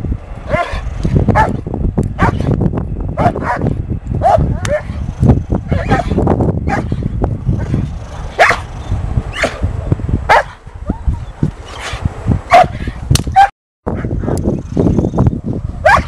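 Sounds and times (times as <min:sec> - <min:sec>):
dog barking: 0:00.5 - 0:00.8, 0:02.2 - 0:02.4, 0:03.2 - 0:04.9, 0:05.7 - 0:06.9, 0:08.4 - 0:08.7, 0:10.3 - 0:10.6, 0:12.5 - 0:12.8.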